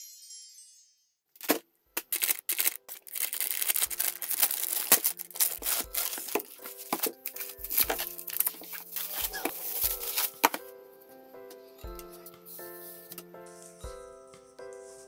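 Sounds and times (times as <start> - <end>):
plastic shrink wrap tearing: 1.4 - 10.6.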